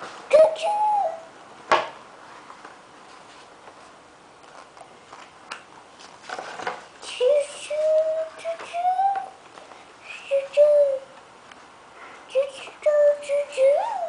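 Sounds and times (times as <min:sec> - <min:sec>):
book page turning: 0:03.1 - 0:06.8.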